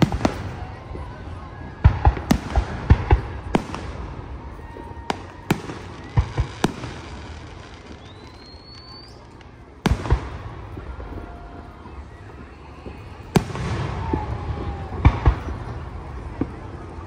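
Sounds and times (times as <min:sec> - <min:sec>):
fireworks bangs and crackles: 0:00.0 - 0:17.0
firework rising whistle: 0:04.2 - 0:09.5.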